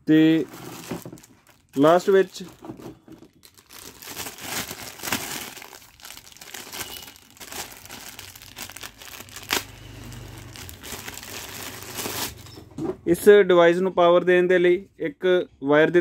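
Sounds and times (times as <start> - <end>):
plastic bag crinkling: 0.2 - 12.5.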